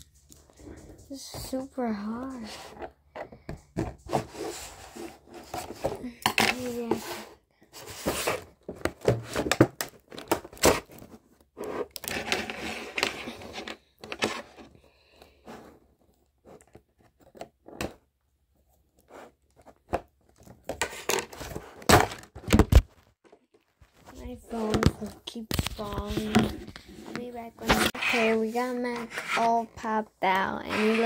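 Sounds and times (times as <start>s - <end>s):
cardboard and plastic packaging tearing: 9.1s - 13.6s.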